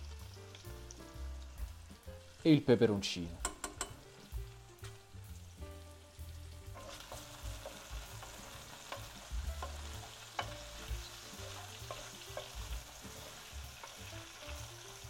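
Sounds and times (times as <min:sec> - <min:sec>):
food frying in oil: 0:00.0 - 0:15.0
wooden spoon scraping a pot: 0:06.8 - 0:14.7.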